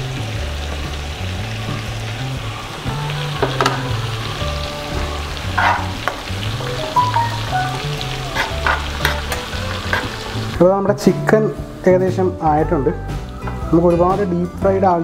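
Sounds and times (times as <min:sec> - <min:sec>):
onions sizzling in hot oil: 0:00.0 - 0:13.7
background music with low notes: 0:00.0 - 0:15.0
spoon scraping a pan: 0:05.4 - 0:06.3, 0:08.1 - 0:10.5.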